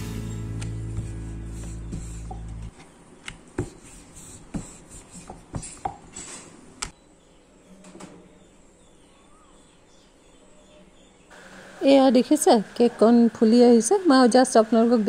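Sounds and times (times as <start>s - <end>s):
rolling pin rolling dough: 0.6s - 2.8s, 3.4s - 6.2s.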